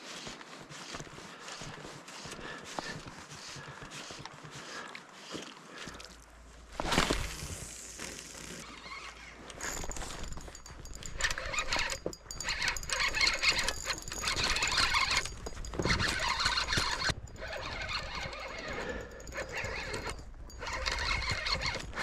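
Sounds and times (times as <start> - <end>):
fishing reel drag buzzing: 11.0 - 22.0.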